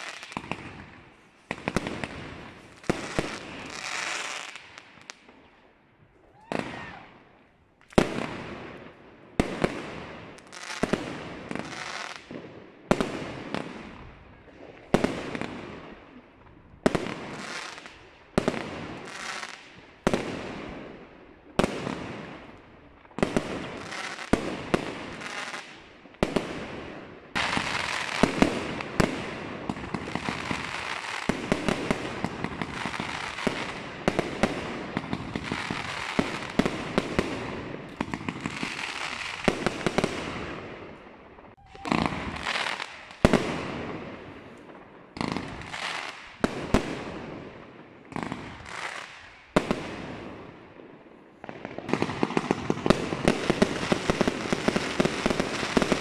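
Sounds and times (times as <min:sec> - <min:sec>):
firework shots: 0:00.0 - 0:05.4, 0:16.8 - 0:56.0
firework crackling and pops: 0:00.0 - 0:56.0.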